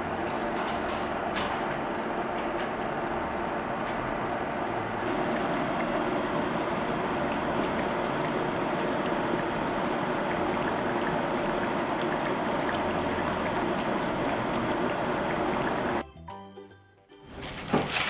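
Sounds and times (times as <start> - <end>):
oil sizzling with small pops: 5.0 - 16.0.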